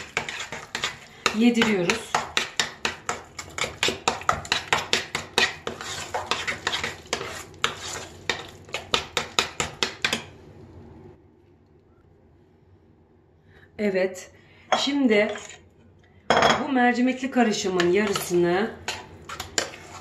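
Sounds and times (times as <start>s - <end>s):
metal spoon scraping a pot: 0.0s - 10.2s, 15.3s - 15.6s, 17.6s - 20.0s.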